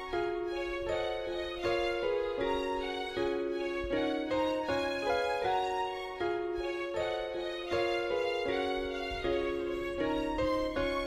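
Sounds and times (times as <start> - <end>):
background music of held notes: 0.0 - 11.0.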